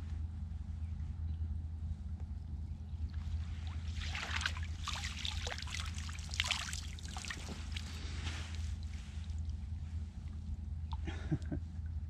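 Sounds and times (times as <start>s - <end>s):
steady low rumble: 0.0s - 12.0s
water dripping off a net: 3.1s - 8.0s.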